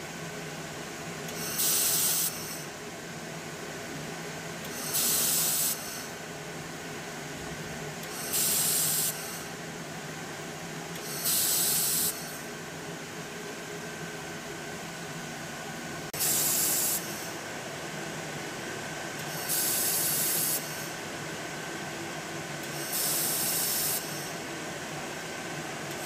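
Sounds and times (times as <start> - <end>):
steady background hum: 0.0 - 26.0
laser welder hissing: 1.4 - 2.6, 4.7 - 6.2, 8.1 - 9.5, 11.0 - 12.4, 16.2 - 17.3, 19.2 - 20.9, 22.6 - 24.3.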